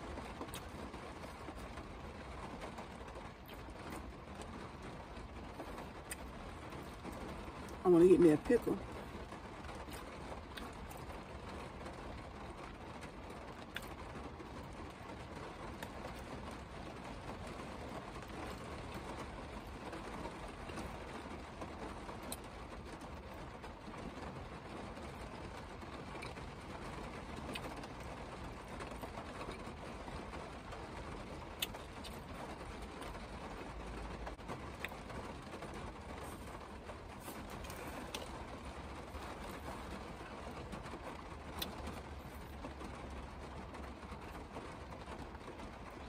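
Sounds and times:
rain on car roof: 0:00.0 - 0:46.0.

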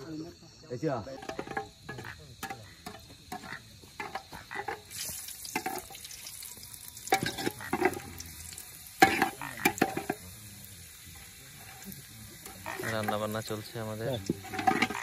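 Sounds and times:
metal ladle scraping pot: 0:01.2 - 0:06.0, 0:07.1 - 0:08.2, 0:09.0 - 0:10.2, 0:11.6 - 0:15.0
onions sizzling in oil: 0:01.2 - 0:15.0.

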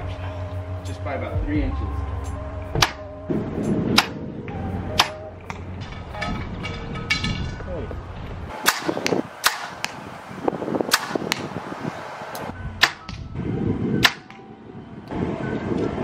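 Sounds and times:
wind rumble on microphone: 0:00.0 - 0:16.0
arrows hitting target: 0:02.7 - 0:03.1, 0:03.9 - 0:04.2, 0:05.0 - 0:07.5, 0:08.5 - 0:10.0, 0:10.8 - 0:11.6, 0:12.8 - 0:13.2, 0:14.0 - 0:14.4
bow shots cracking: 0:02.8 - 0:03.1, 0:03.9 - 0:04.2, 0:04.9 - 0:05.7, 0:08.5 - 0:10.0, 0:10.9 - 0:11.6, 0:14.0 - 0:14.4.

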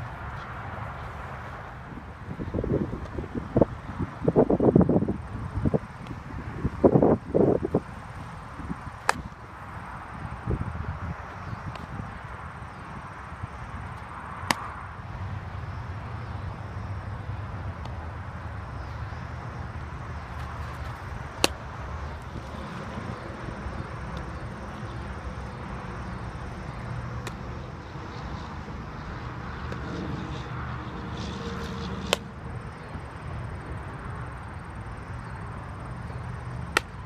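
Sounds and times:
low outdoor rumble: 0:13.4 - 0:37.0.

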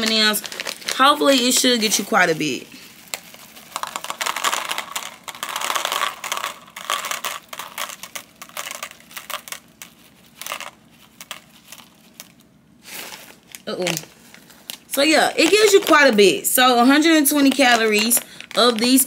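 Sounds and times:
plastic bag crinkling: 0:00.0 - 0:19.0
small candies dropping onto plate: 0:03.1 - 0:12.4, 0:17.0 - 0:19.0.

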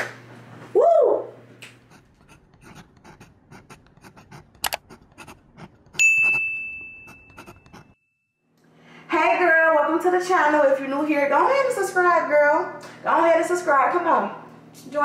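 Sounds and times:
pen scratching: 0:01.9 - 0:06.4, 0:07.1 - 0:08.0
sharp click: 0:04.6 - 0:04.8
notification bell ding: 0:06.0 - 0:08.4.

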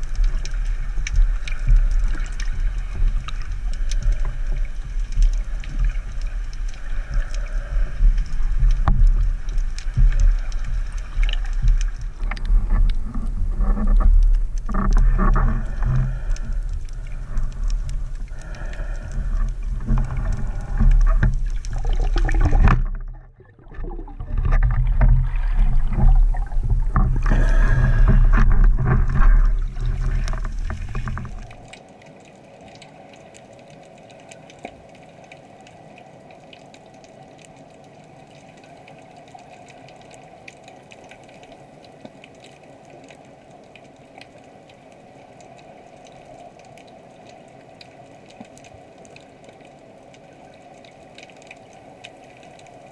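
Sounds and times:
underwater hiss: 0:00.0 - 0:12.0, 0:15.3 - 0:22.7, 0:27.2 - 0:28.4
deep underwater water noise: 0:00.0 - 0:52.9
faint crackling clicks: 0:00.0 - 0:52.9.

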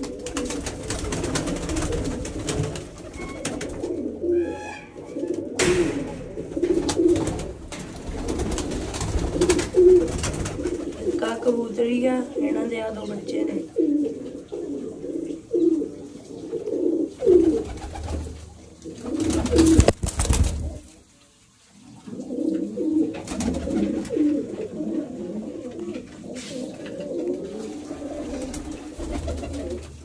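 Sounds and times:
pigeons cooing: 0:00.0 - 0:21.1, 0:21.7 - 0:30.0
loud burst of knocks: 0:05.6 - 0:08.0.

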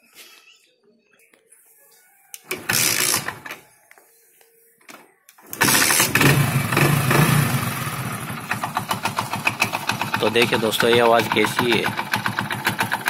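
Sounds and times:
motorcycle engine kick-started: 0:02.5 - 0:03.6, 0:05.4 - 0:13.0.

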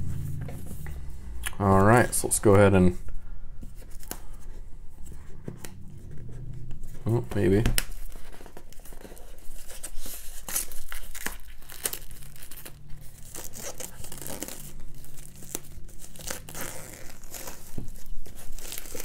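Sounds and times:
shrink wrap tearing and crinkling: 0:07.0 - 0:19.0.

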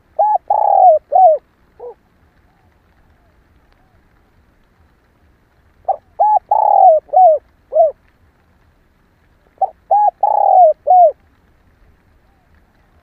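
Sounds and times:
dove cooing: 0:00.0 - 0:04.2, 0:05.8 - 0:08.0, 0:09.5 - 0:11.2.

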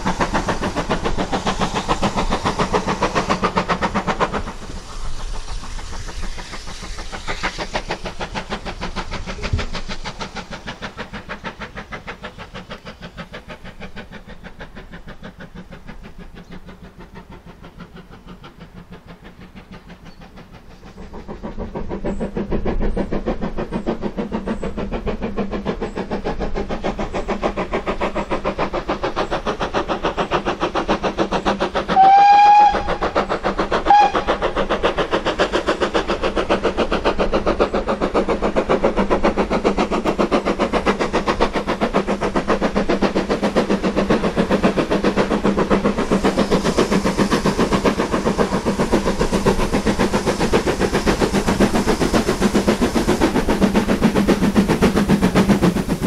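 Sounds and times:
steam locomotive exhaust beats: 0:00.0 - 0:56.0
steam whistle: 0:31.9 - 0:33.0, 0:33.8 - 0:34.3.

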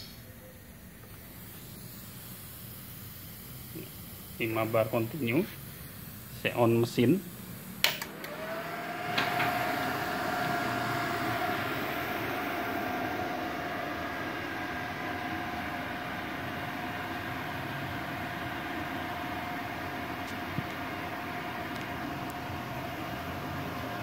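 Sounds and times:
cooling fans whining: 0:00.0 - 0:24.0
whooshing hum: 0:05.5 - 0:24.0.

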